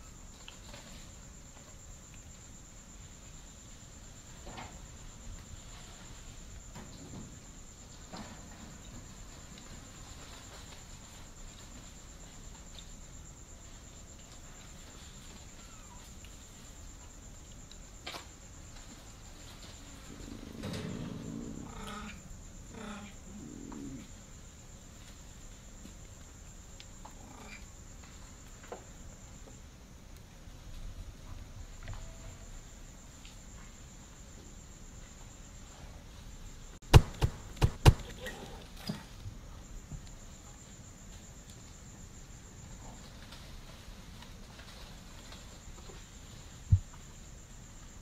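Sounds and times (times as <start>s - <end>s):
cat growling low: 20.3s - 24.1s
sharp knocks on steps: 36.9s - 38.1s.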